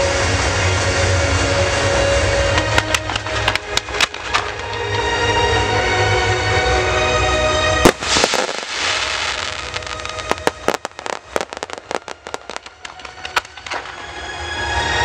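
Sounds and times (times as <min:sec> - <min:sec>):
music with sustained chords: 0:00.0 - 0:15.0
firework crackling pops: 0:02.5 - 0:05.0, 0:07.8 - 0:14.2
firework shell burst: 0:07.8 - 0:14.1
firework hiss: 0:07.8 - 0:14.3.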